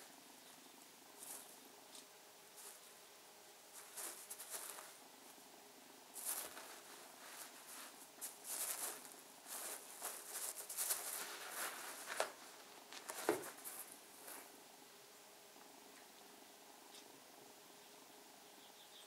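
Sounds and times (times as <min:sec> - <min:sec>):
cat pawing cushion rustling: 0:03.7 - 0:05.0, 0:06.2 - 0:14.5.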